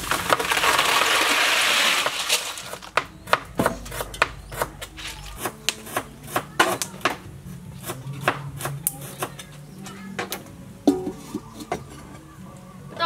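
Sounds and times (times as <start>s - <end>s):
snails clattering in plastic basket: 0.0s - 3.0s.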